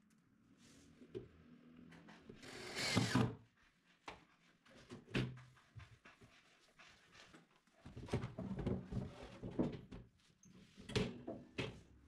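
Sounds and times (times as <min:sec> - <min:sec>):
cordless drill driving a screw: 0:02.4 - 0:03.3.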